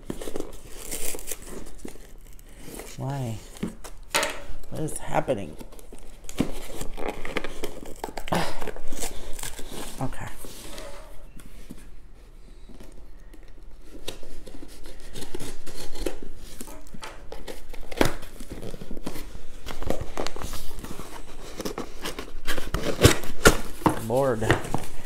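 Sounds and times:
cardboard tearing and crinkling: 0.0s - 4.1s, 4.7s - 11.3s, 13.8s - 25.0s
box cutter scraping cardboard: 21.0s - 24.8s.

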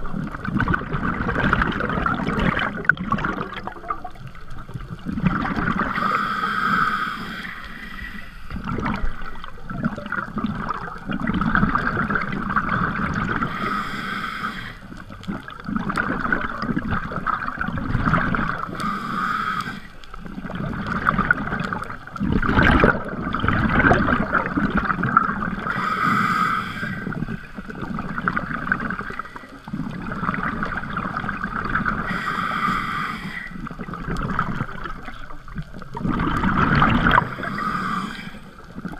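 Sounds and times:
gurgling exhaust bubbles: 0.0s - 6.7s, 8.5s - 13.6s, 15.2s - 18.8s, 20.2s - 26.0s, 33.6s - 38.0s
regulator breathing underwater: 5.2s - 9.9s, 13.0s - 15.3s, 18.5s - 21.9s, 25.5s - 35.1s, 36.3s - 38.9s.

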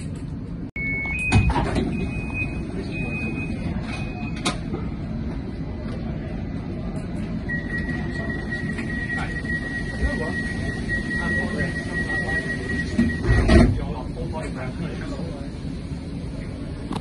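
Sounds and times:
tram interior rumble: 0.0s - 17.0s
electronic warning beeps: 0.8s - 4.5s, 7.5s - 13.6s
continuous high tone: 7.3s - 14.5s.

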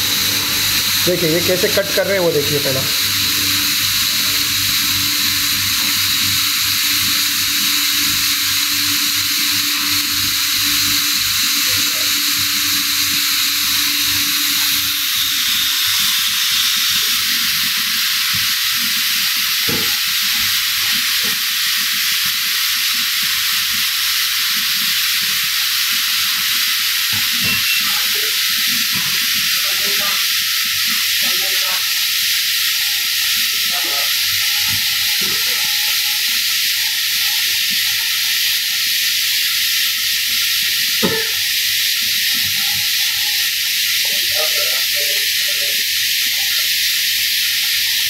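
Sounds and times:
kitchen background hiss: 0.0s - 48.0s
low hum: 2.9s - 15.9s.

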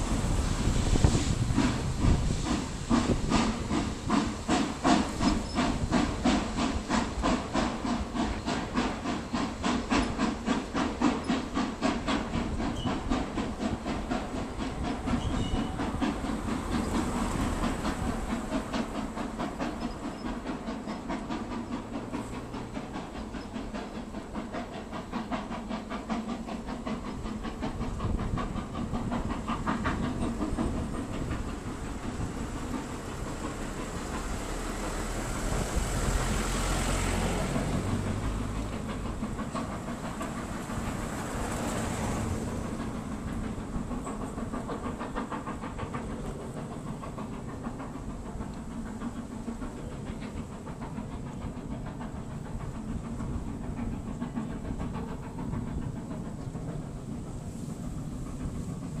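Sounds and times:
hissing steam: 0.0s - 59.0s
steam locomotive exhaust beats: 0.0s - 59.0s.

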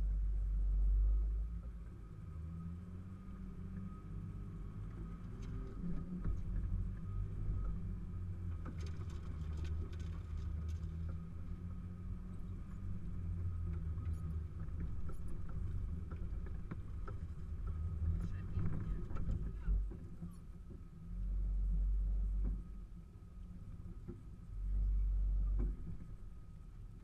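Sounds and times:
off-road vehicle engine at low revs: 0.0s - 27.0s
knocks and rattles from vehicle body: 12.6s - 20.9s, 25.4s - 26.4s.

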